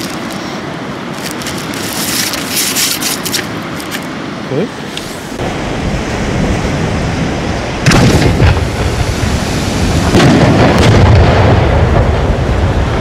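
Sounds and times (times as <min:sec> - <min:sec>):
rushing rumble: 0:00.0 - 0:13.0
firework mortar launch boom: 0:07.8 - 0:12.9.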